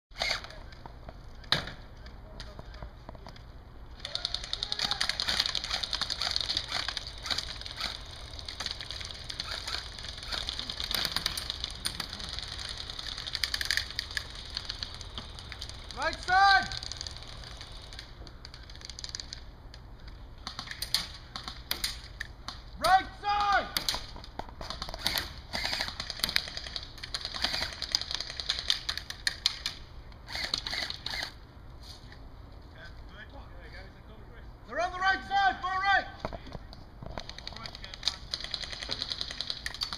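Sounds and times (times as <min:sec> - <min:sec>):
airsoft guns firing: 0:03.9 - 0:19.3, 0:23.4 - 0:31.4, 0:37.2 - 0:39.9
pellets striking barriers: 0:04.0 - 0:18.2.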